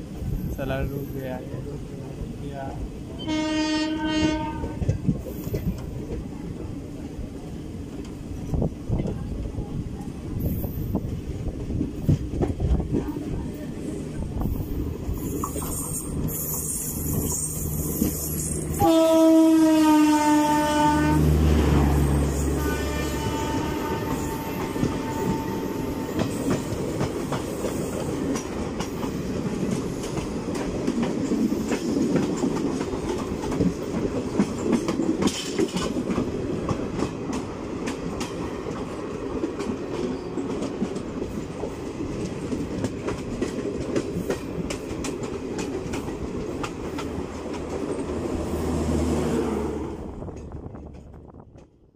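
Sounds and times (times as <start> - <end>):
passing train rushing: 0.0 - 51.9
train horn: 3.2 - 5.0, 18.7 - 26.6
train wheels clattering on rails: 3.3 - 19.2, 21.8 - 51.9.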